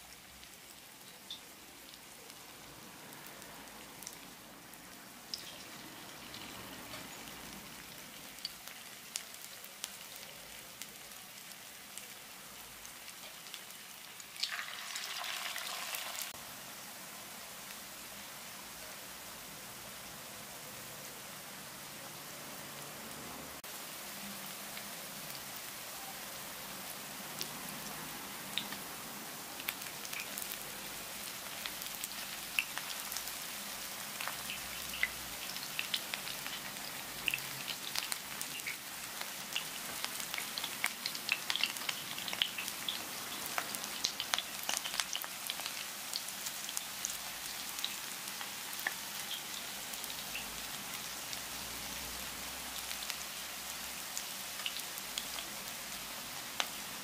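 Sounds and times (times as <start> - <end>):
fritters sizzling in oil: 0.0 - 57.0
oil crackling and popping: 0.1 - 2.4, 5.3 - 16.4, 28.5 - 28.8, 29.6 - 57.0.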